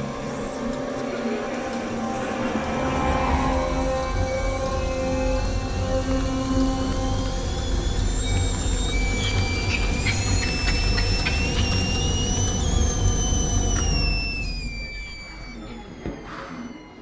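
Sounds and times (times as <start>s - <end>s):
kettle whistling: 0.0s - 16.2s
deep rumble: 1.5s - 8.2s.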